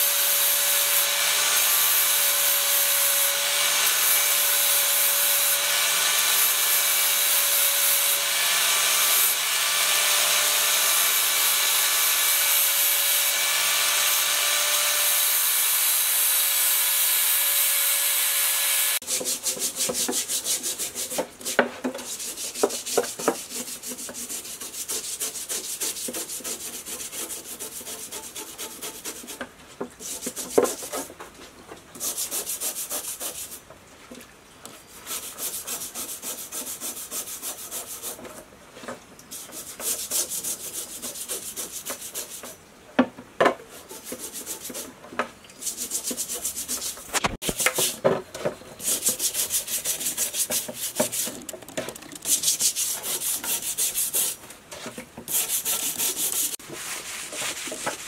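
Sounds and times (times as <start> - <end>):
brush scrubbing metal blade: 19.0 - 29.4, 43.7 - 44.9, 45.6 - 48.0, 48.8 - 58.0.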